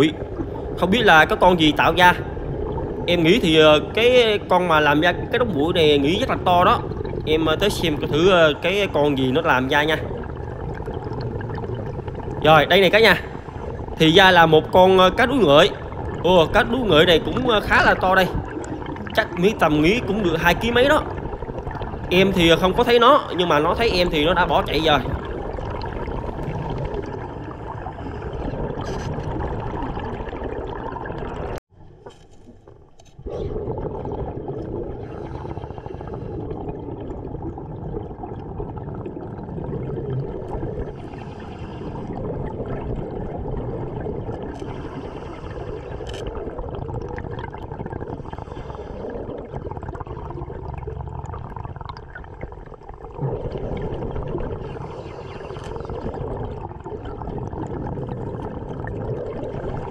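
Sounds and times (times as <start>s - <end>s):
exhaled bubbles gurgling: 0.0s - 59.9s
underwater breathing gear air rushing: 40.8s - 42.4s, 44.5s - 46.5s, 48.0s - 49.8s, 53.2s - 56.7s.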